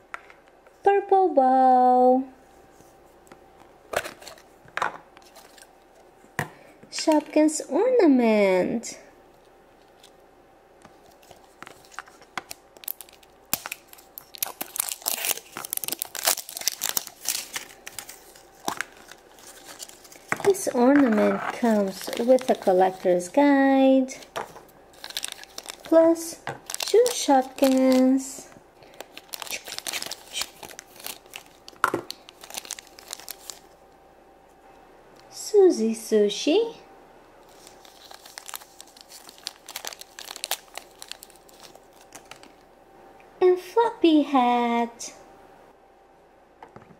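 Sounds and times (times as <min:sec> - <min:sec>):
plastic wrapper crinkling and tearing: 0:05.2 - 0:05.8, 0:10.9 - 0:23.4, 0:24.1 - 0:33.8, 0:37.4 - 0:42.6.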